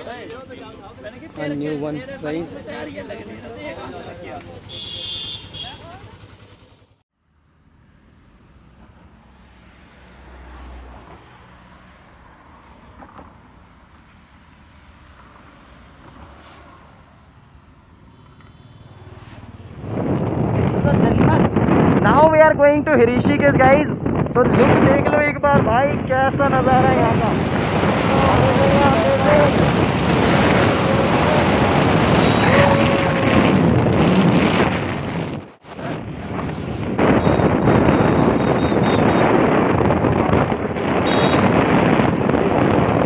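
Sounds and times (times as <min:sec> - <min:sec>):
motorcycle engine humming: 0:00.0 - 0:20.8
wind roaring over microphone: 0:18.9 - 0:43.0.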